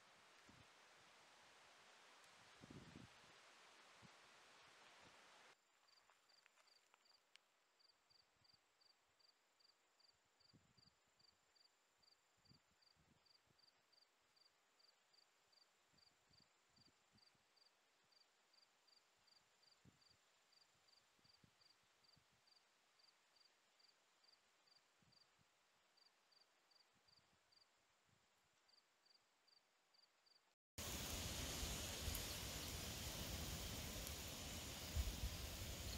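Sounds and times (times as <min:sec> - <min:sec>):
cricket chirping: 0:05.6 - 0:25.3, 0:28.7 - 0:35.9
insect trill: 0:29.5 - 0:35.9.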